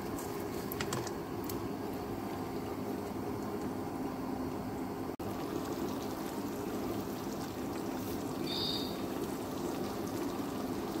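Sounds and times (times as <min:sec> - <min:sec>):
sauce bubbling in a frying pan: 0:05.1 - 0:11.0.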